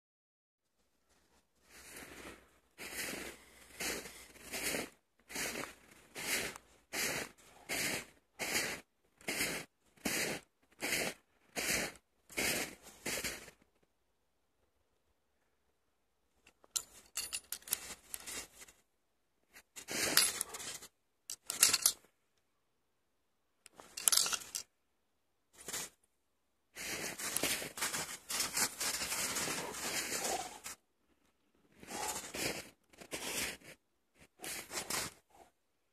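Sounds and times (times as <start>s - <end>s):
footsteps crunching in snow: 1.0s - 13.6s, 17.7s - 18.8s, 25.6s - 26.0s, 26.8s - 30.8s, 31.7s - 35.4s.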